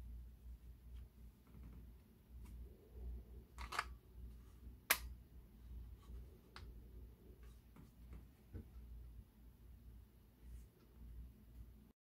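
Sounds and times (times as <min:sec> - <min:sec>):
low hum: 0:00.0 - 0:11.9.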